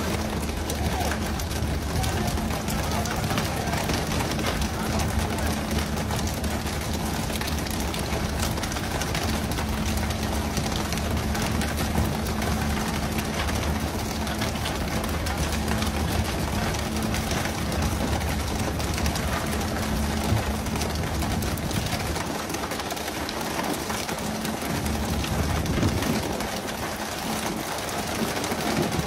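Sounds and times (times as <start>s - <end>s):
low engine hum: 0.0s - 29.0s.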